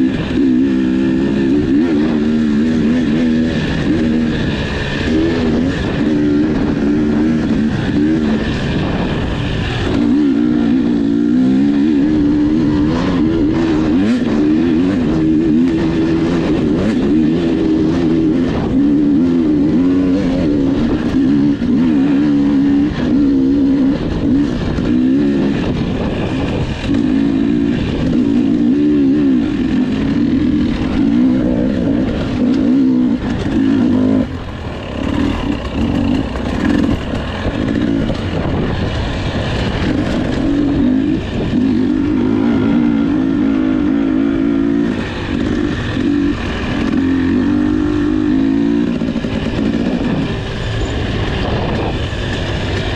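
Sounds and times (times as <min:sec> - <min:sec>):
motorcycle engine revving: 0:00.0 - 0:52.9.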